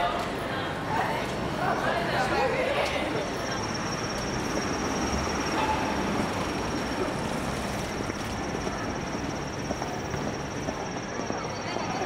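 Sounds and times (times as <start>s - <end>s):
crowd noise: 0.0s - 12.0s
traffic: 0.0s - 12.0s.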